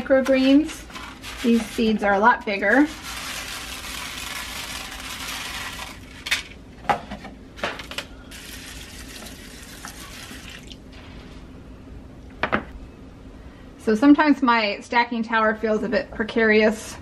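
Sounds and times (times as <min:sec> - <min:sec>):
seeds pouring onto plastic tray: 0:02.8 - 0:06.1
tap water running: 0:08.3 - 0:10.8.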